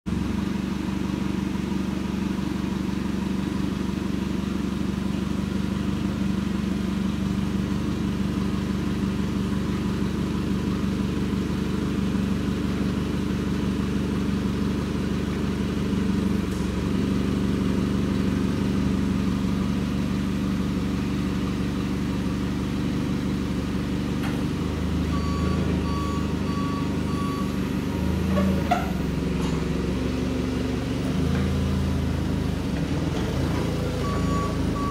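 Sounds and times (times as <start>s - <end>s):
forklift engine running: 0.1s - 34.9s
backup alarm beeping: 25.1s - 27.6s, 34.0s - 34.9s.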